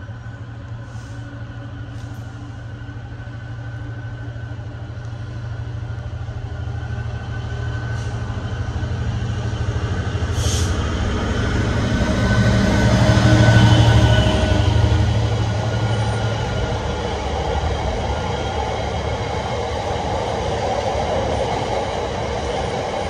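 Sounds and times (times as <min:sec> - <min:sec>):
train hum: 0:00.0 - 0:23.0
brief hiss: 0:10.3 - 0:10.8.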